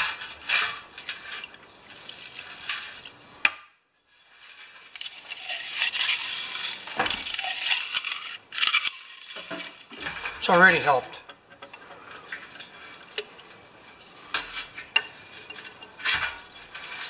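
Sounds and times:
solvent splashing: 4.4s - 17.0s.

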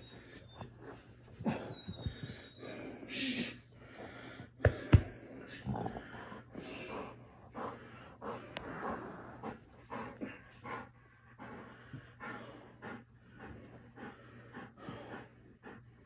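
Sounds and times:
dog panting hard: 3.8s - 16.0s.

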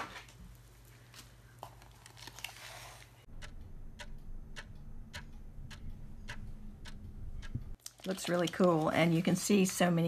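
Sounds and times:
clock-like ticking: 3.3s - 7.8s
low hum: 3.3s - 7.8s.

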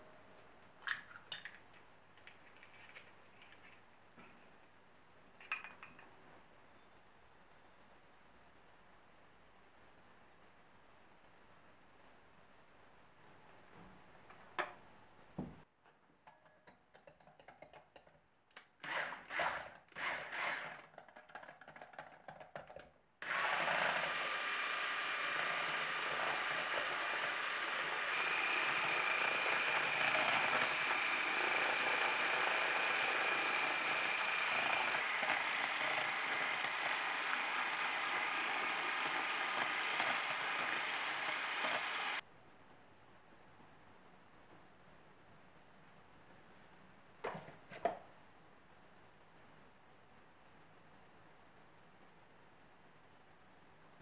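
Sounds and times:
electric hand mixer whisking: 23.2s - 42.2s.

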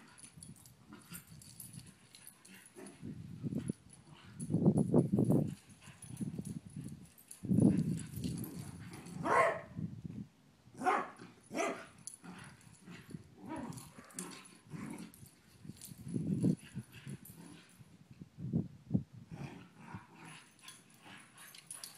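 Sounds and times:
dogs barking: 9.2s - 9.7s, 10.8s - 11.9s.

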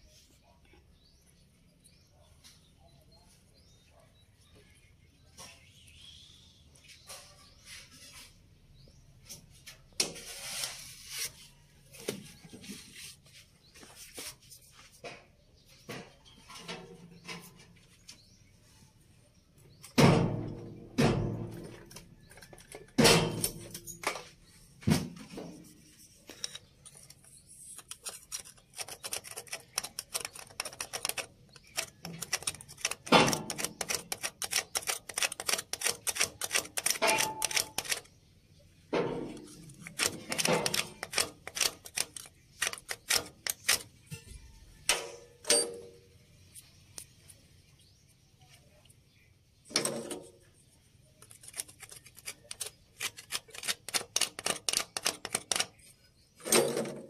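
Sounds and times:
hand tools clicking: 27.8s - 38.1s, 39.7s - 43.8s, 51.2s - 55.8s.

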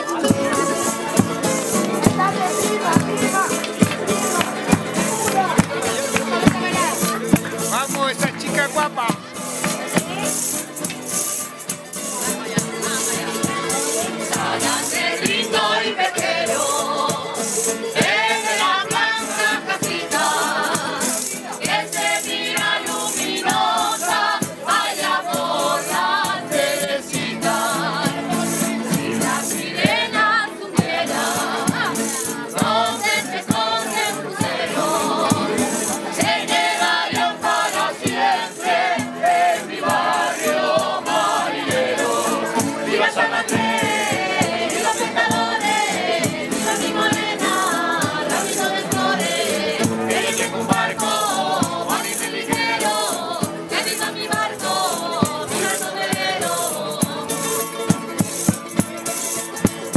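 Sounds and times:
group singing in chorus: 0.0s - 7.9s, 12.1s - 59.9s
jingling tambourine: 0.0s - 59.9s
strummed guitars: 0.0s - 59.9s
stick-beaten drum: 0.1s - 11.8s, 27.1s - 59.9s.

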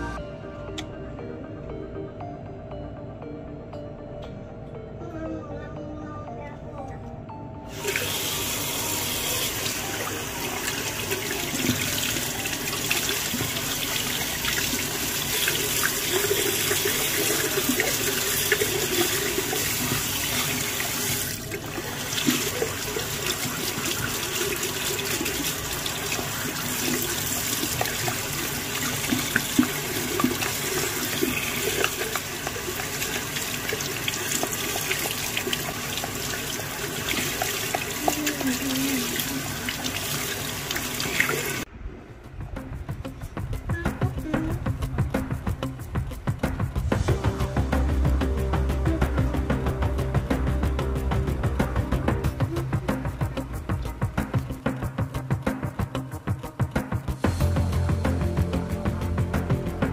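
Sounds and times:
tap water splashing into sink: 10.8s - 41.6s.

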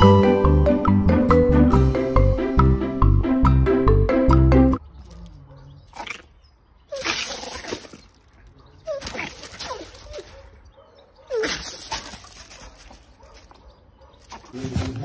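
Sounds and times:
animal whimpering cries: 8.8s - 10.4s.

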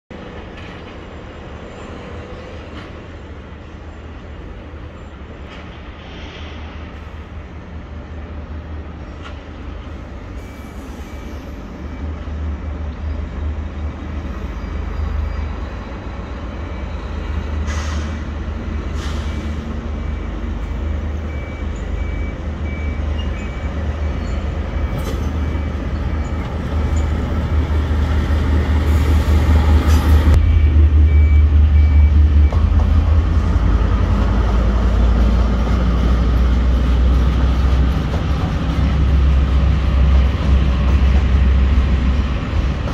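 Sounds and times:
diesel locomotive engine rumble: 0.1s - 42.9s
faint high beep: 10.4s - 12.1s, 30.4s - 32.6s.

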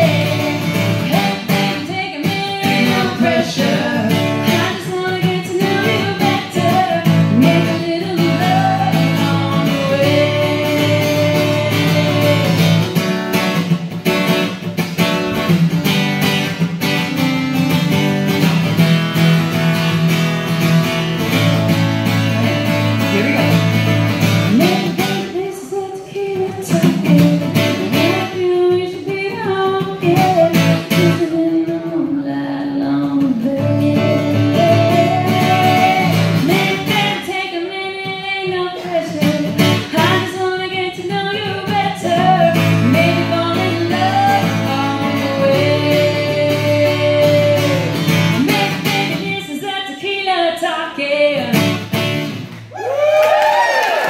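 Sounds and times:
strummed acoustic guitar: 0.0s - 50.6s, 51.2s - 52.6s
woman singing country song: 0.0s - 52.3s.

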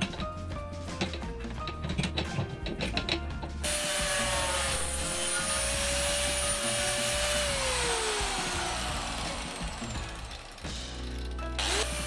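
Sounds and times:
angle grinder whining: 3.6s - 12.0s
grinder disc hissing cut: 3.6s - 12.0s.

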